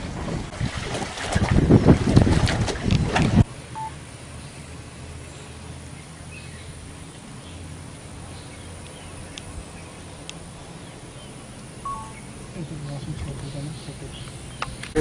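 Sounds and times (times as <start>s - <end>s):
faint bird chirps: 10.8s - 12.6s.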